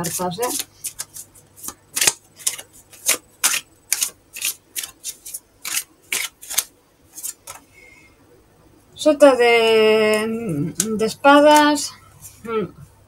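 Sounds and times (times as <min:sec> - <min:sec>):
cards being shuffled: 0:00.0 - 0:07.6.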